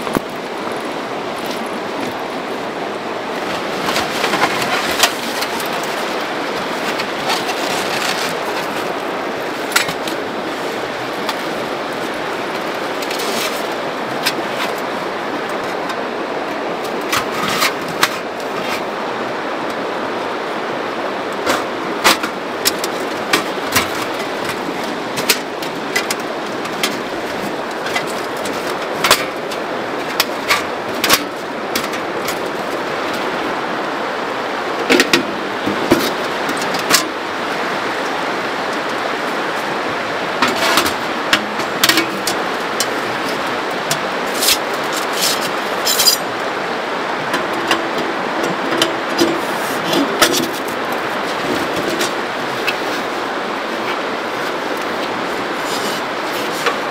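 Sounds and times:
canvas rustling: 0.0s - 19.6s, 48.1s - 56.9s
steady rushing noise: 0.0s - 56.9s.

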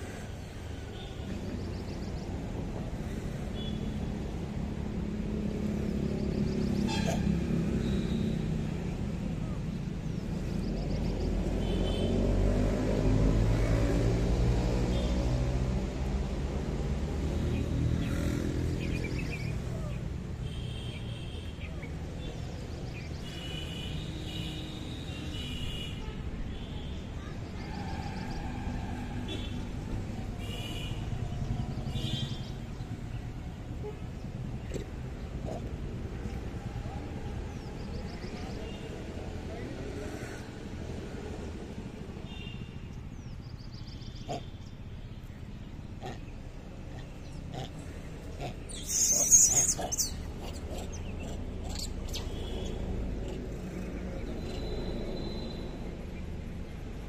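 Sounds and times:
monkey screaming: 48.7s - 52.3s.

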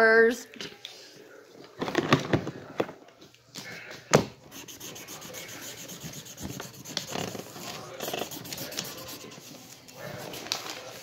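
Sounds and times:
quick scratching strokes: 4.5s - 11.0s
rubbing and scraping on surface: 4.5s - 11.0s.

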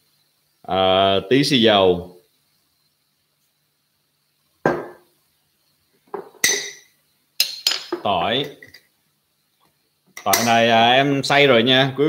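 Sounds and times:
glass bottles and jars clinking: 6.1s - 8.8s.

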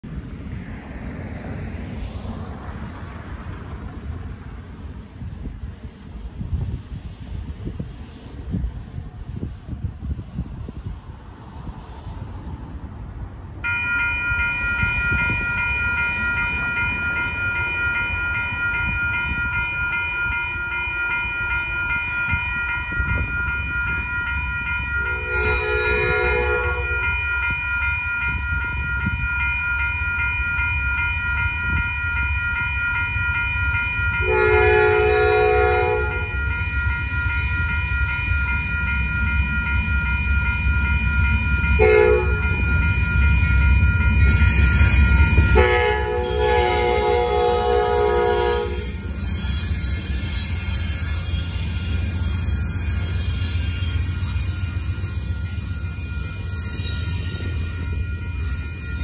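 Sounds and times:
train rumbling: 0.0s - 59.0s
electronic crossing bell ringing: 13.6s - 59.0s
train horn blasts: 25.0s - 27.2s, 34.2s - 36.5s, 41.8s - 43.2s, 44.1s - 49.0s.

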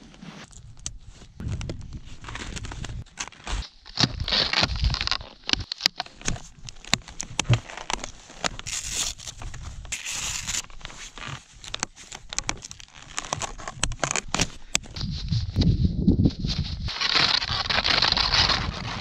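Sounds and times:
skis crunching on crusty snow: 6.4s - 15.2s.

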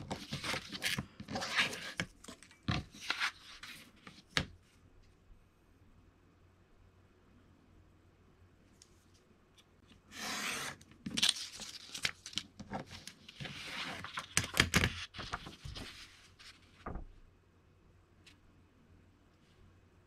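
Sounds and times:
craft knife cutting paper: 10.1s - 11.3s.

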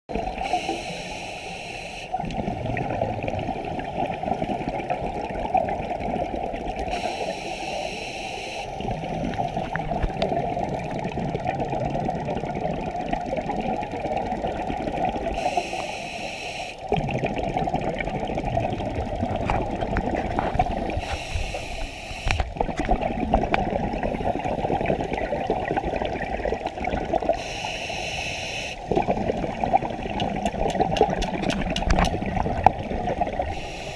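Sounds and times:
bubbling exhaled air: 0.1s - 33.9s
hissing regulator inhales: 0.4s - 2.2s, 6.9s - 8.8s, 15.4s - 16.8s, 21.0s - 22.5s, 27.4s - 28.9s, 33.5s - 33.9s.

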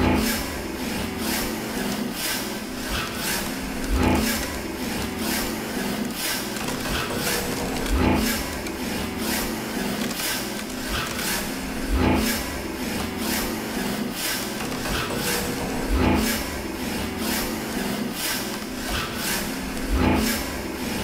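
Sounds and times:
steady low drone: 0.0s - 6.2s
rhythmic rasping scrapes: 0.0s - 21.0s.

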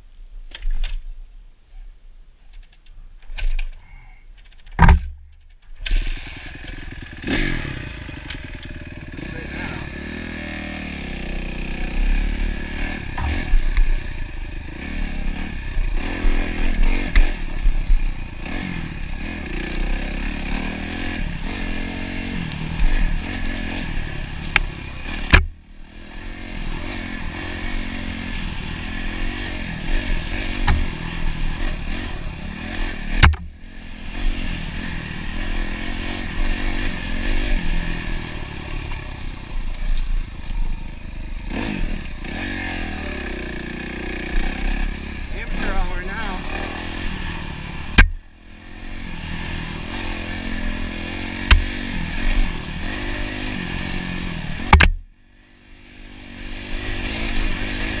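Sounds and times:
sharp knocks: 4.8s - 5.3s, 33.2s - 33.5s
dirt bike engine revving: 5.8s - 58.0s.

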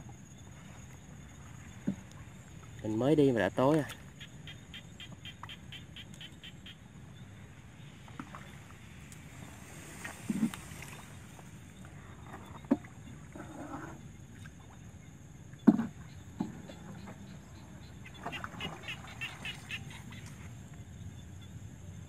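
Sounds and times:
paddle splash: 0.0s - 20.6s
paddle knocking wooden boat: 1.4s - 6.0s, 15.6s - 20.4s
short chirping calls: 3.8s - 6.8s.

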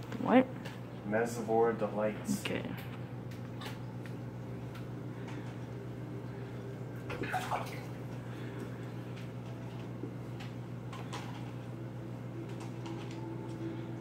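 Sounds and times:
aquarium pump hum: 0.0s - 14.0s
water trickling and bubbling: 7.0s - 8.2s.

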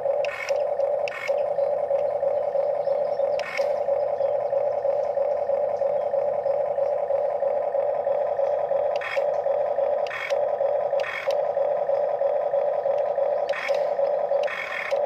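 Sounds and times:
toy electric motors whining: 0.0s - 15.0s
sharp click: 3.4s - 3.8s.

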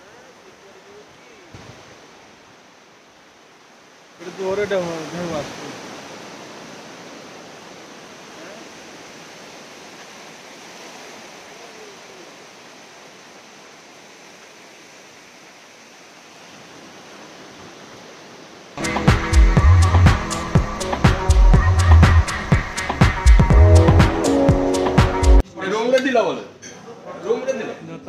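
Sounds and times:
surf washing onto beach: 0.0s - 25.4s
music: 18.8s - 25.4s.

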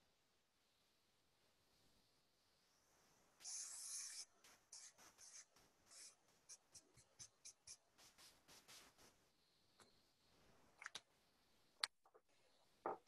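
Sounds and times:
pencil scratching on paper: 3.4s - 9.2s.

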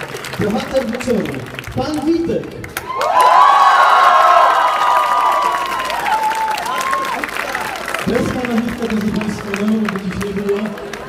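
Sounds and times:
crowd cheering: 2.8s - 11.0s.

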